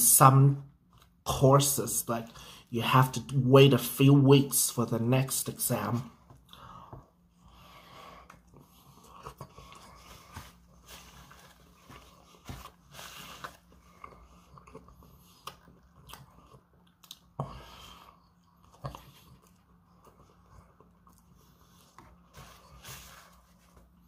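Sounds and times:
chewing with mouth smacks: 13.5 - 17.4, 18.0 - 21.9.

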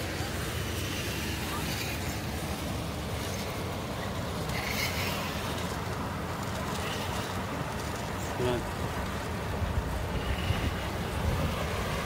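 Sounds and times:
rc truck low rumble: 0.0 - 12.0.

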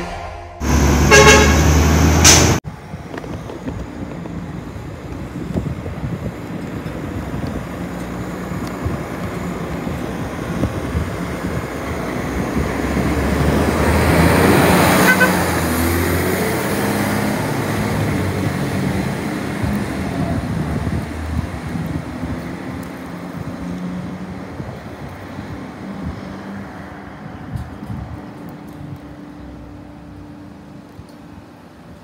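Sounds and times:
garbage truck driving past: 0.0 - 2.6, 7.0 - 24.7.

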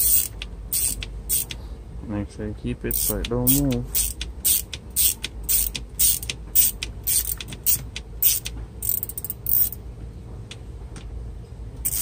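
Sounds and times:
ratchet driver clicking: 0.0 - 1.6, 2.9 - 9.8.

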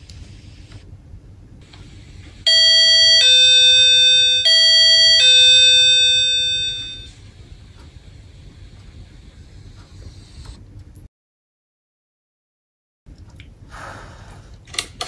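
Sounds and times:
doorbell ding-dong chime: 2.5 - 7.1.

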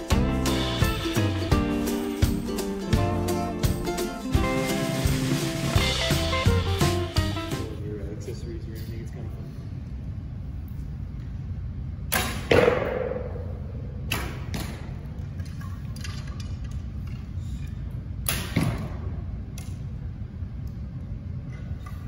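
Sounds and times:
arrow hitting target: 12.1 - 13.4, 14.0 - 15.0, 18.2 - 19.2.

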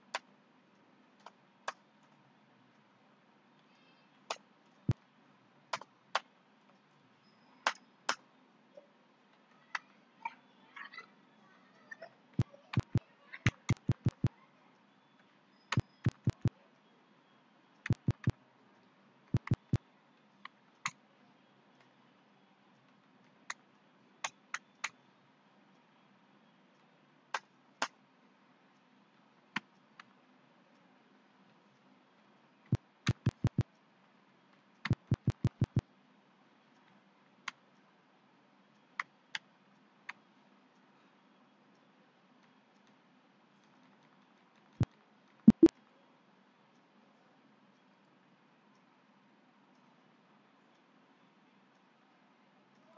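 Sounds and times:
keyboard keystrokes clicking: 12.8 - 14.3, 15.8 - 16.5, 17.9 - 18.3, 19.4 - 19.8, 33.1 - 33.6, 34.9 - 35.8, 45.5 - 45.7.

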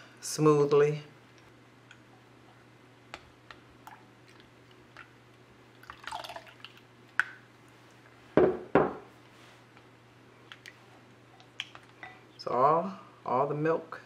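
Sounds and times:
milk pouring into bowl: 5.7 - 6.9.

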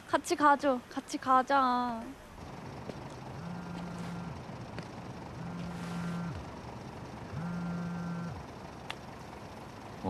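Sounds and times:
smartphone vibrating buzzes: 3.3 - 4.4, 5.4 - 6.5, 7.3 - 8.4.

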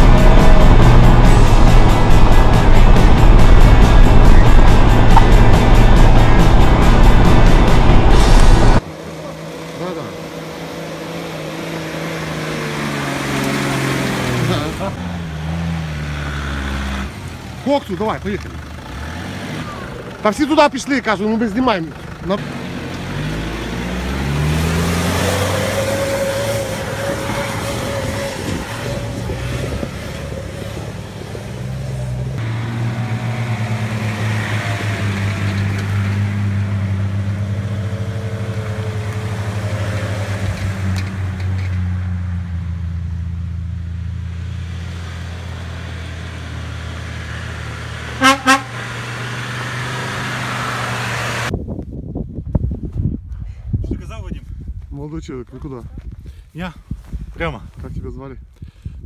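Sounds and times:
off-road vehicles driving past: 0.0 - 51.6
car horn toots: 48.2 - 48.9.

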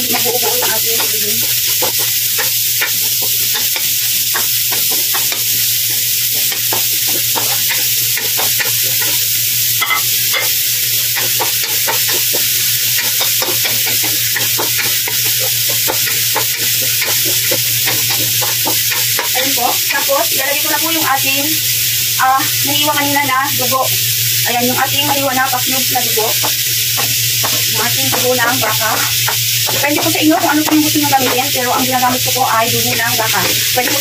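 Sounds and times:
food sizzling in hot oil: 0.0 - 34.0.

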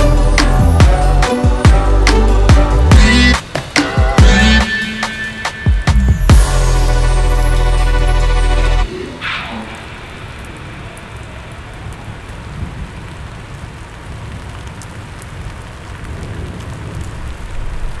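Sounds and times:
rain-like hiss with crackles: 0.0 - 18.0
low rumble: 6.3 - 13.0
falling swoosh: 8.4 - 12.1.

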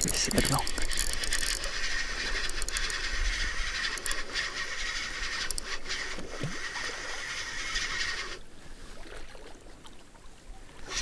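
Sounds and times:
fishing reel whirring: 0.0 - 8.4
sharp clicks of reel: 0.0 - 8.4.

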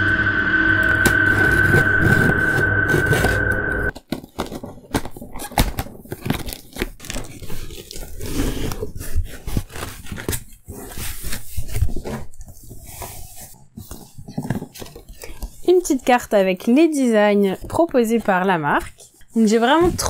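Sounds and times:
cardboard box being opened: 4.0 - 15.6.

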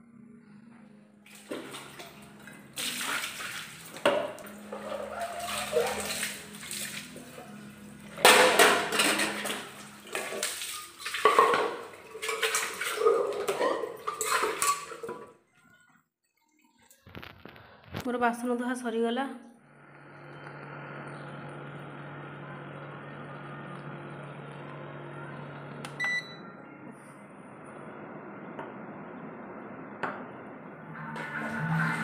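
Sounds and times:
water splashing and pouring: 1.3 - 17.6
metal pots clattering: 8.2 - 15.4.

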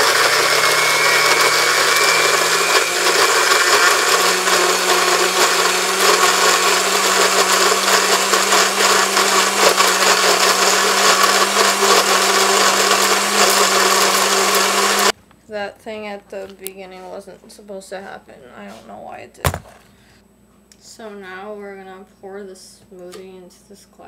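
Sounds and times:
blender running: 0.0 - 15.1.

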